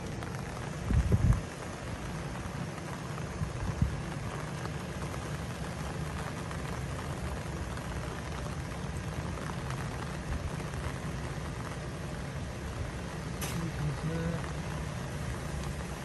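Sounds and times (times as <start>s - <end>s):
light rain hissing: 0.0s - 16.0s
wind buffeting microphone: 0.8s - 1.6s, 3.3s - 4.1s.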